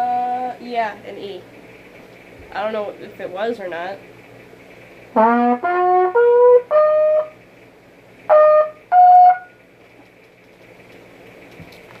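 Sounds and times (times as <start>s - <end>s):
trumpet notes: 5.1s - 7.4s, 8.3s - 9.6s.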